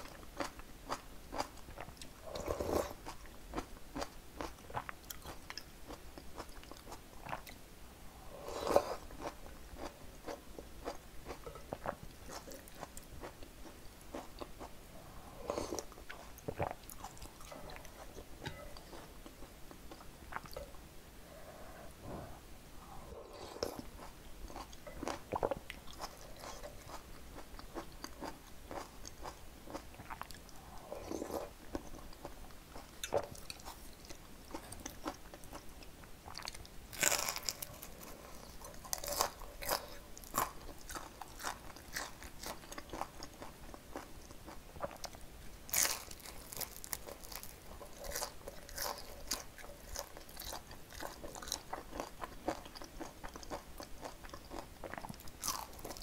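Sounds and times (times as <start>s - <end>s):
chewing: 23.1s - 35.7s, 36.3s - 56.0s.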